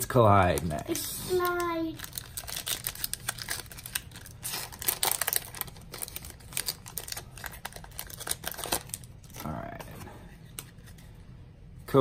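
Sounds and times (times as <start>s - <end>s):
foil wrapper tearing and crinkling: 0.4s - 9.5s.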